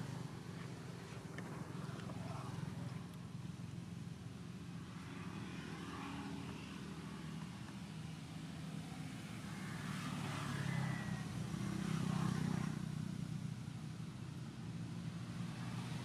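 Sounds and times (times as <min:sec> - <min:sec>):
vehicle engine rumble: 0:00.0 - 0:16.0.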